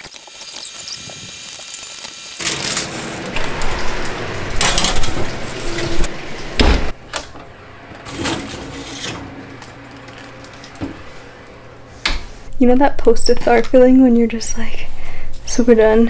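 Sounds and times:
aluminium foil crinkling: 0.0 - 2.4
baking tray scraping on oven rack: 2.4 - 12.5
low steady hum: 3.1 - 16.0.

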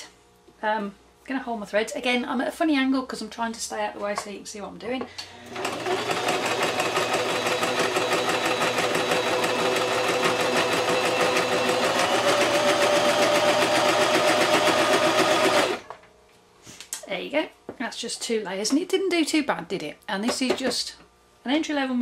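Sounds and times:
sewing machine stitching: 5.4 - 15.8.

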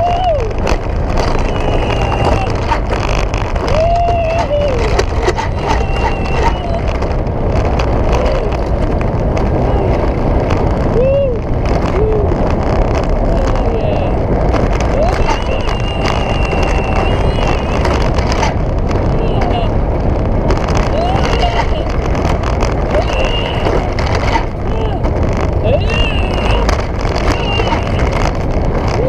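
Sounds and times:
rush of wind: 0.0 - 29.0
sled rumbling on steel rail: 0.0 - 29.0
rising and falling whines: 3.6 - 8.8, 15.0 - 18.2.

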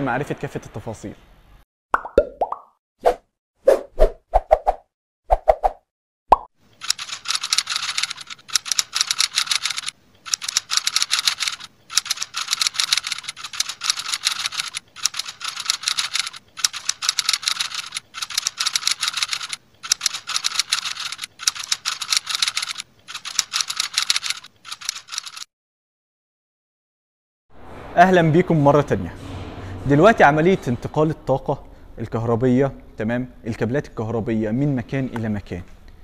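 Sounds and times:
keyboard typing clicks: 6.8 - 25.5.

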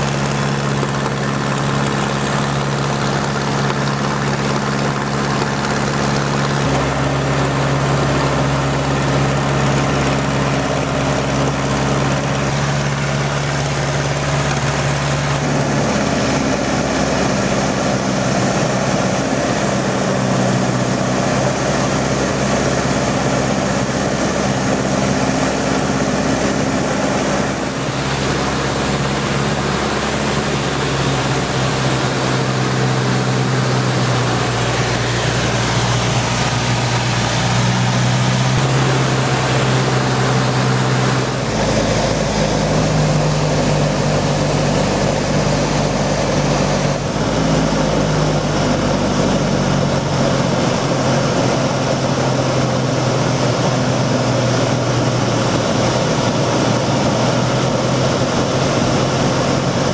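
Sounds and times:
propeller plane engine droning: 0.0 - 59.9
slipstream rushing: 0.0 - 59.9.

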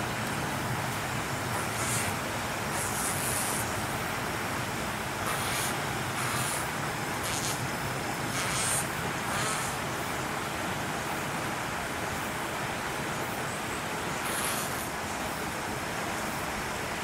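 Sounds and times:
distant traffic: 0.0 - 17.0
short hissy bursts: 1.5 - 3.8, 5.2 - 7.7, 8.3 - 9.9, 14.2 - 15.0.

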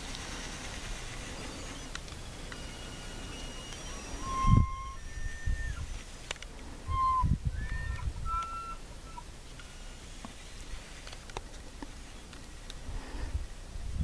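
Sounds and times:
distant elk bugling: 0.4 - 6.2, 6.8 - 10.9.

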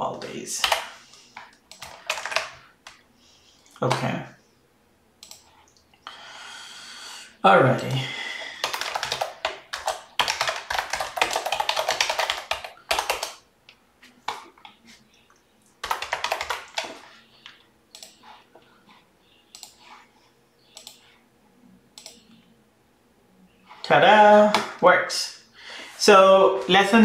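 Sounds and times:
typing on computer keyboard: 0.6 - 3.0, 8.4 - 13.4, 15.8 - 18.4, 20.7 - 21.2.

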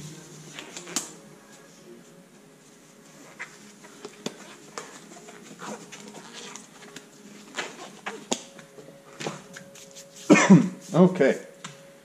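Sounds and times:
gloves rustling: 0.0 - 11.8
glove snaps and clicks: 0.6 - 1.2, 6.5 - 8.6.

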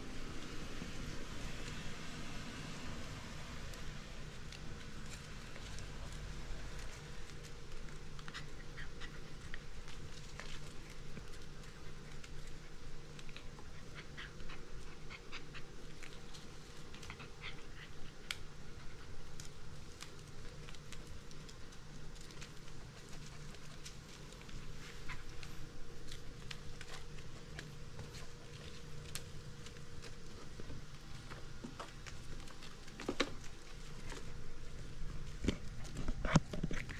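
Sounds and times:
claws clicking on tile floor: 3.8 - 36.9.

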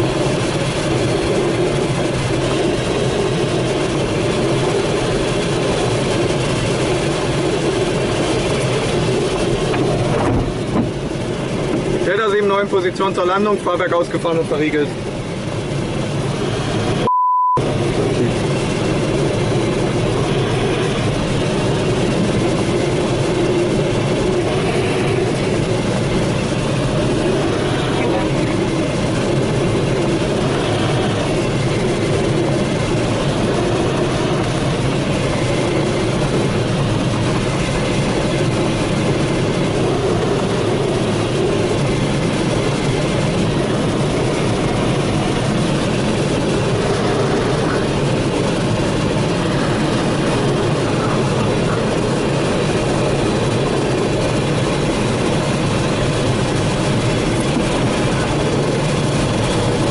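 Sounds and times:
airflow rushing over canopy: 0.0 - 59.9
short beep: 17.1 - 17.6.

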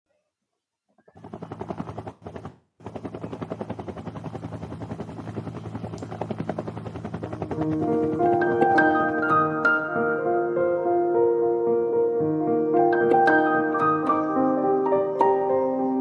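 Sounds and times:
rapid even pulsing: 1.0 - 10.1
low hum: 1.2 - 9.8
keyboard music with held notes: 7.2 - 16.0.

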